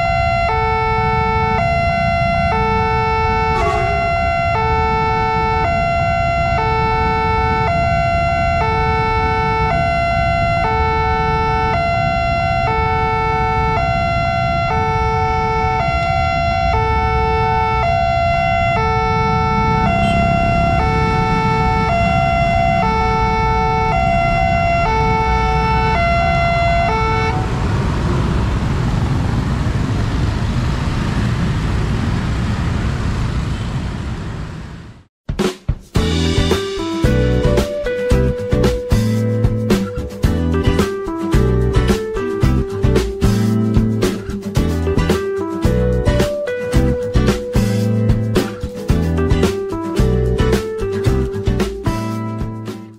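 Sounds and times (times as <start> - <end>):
two-tone electronic crossing alarm: 0.0 - 28.2
electric train rumbling past: 0.0 - 35.1
road traffic rumble: 0.0 - 35.1, 36.0 - 52.7
motorbikes: 2.6 - 34.8.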